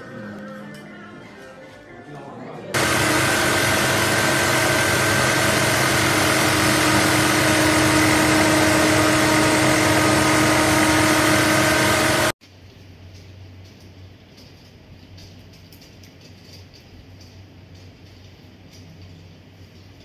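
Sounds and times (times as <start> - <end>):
sewing machine whirring: 2.8 - 12.4.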